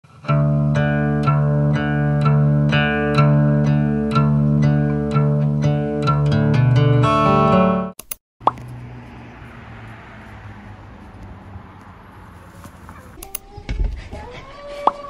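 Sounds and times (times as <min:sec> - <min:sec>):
dog whining: 0:12.9 - 0:15.0.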